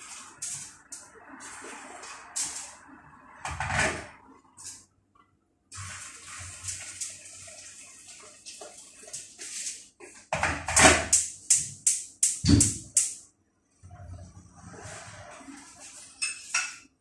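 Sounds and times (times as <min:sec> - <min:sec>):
sharp strokes at the stove: 0:00.0 - 0:03.0
water pouring into a pot: 0:05.7 - 0:09.8, 0:14.7 - 0:16.7.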